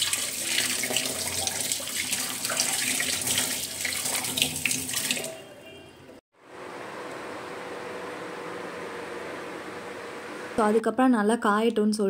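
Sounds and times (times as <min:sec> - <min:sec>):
tap water running into a sink: 0:00.0 - 0:05.4
water splashing over metal vessels: 0:00.0 - 0:05.5.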